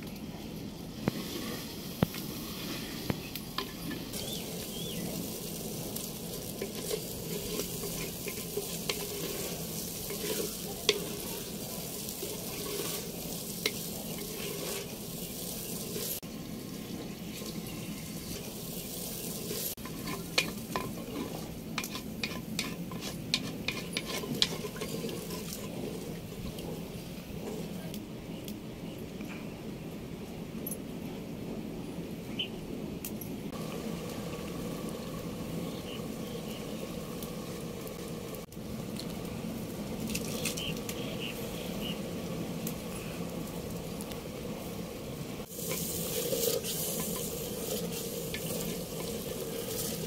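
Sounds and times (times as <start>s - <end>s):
food sizzling: 0.9s - 27.8s, 33.5s - 50.0s
ladle scraping rice in pot: 6.4s - 15.0s, 19.5s - 26.1s.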